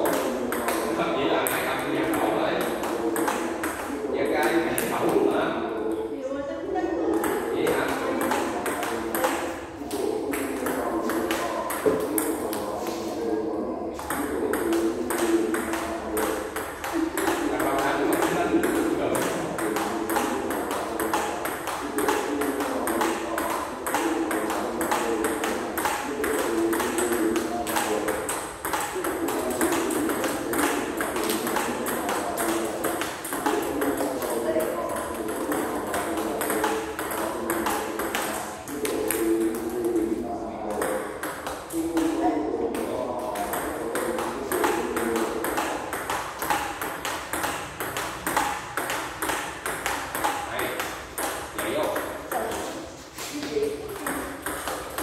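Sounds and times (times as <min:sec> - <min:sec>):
ball bouncing on table: 0:00.0 - 0:05.3, 0:07.1 - 0:12.7, 0:14.0 - 0:40.1, 0:40.7 - 0:52.8, 0:53.4 - 0:55.0
table tennis ball clicking: 0:43.3 - 0:52.7.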